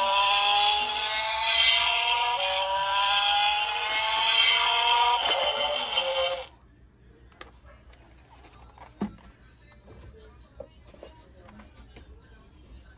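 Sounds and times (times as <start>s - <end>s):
toy car electronic tune: 0.0s - 6.5s.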